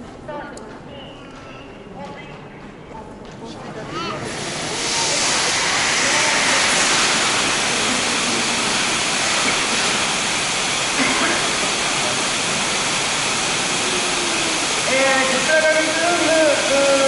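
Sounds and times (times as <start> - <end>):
hissing rush of water mist: 4.2 - 17.0.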